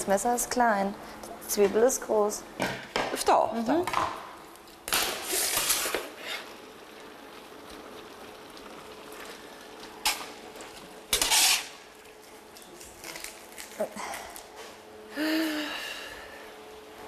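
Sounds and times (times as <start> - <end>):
onion skin rustling: 10.7 - 14.6.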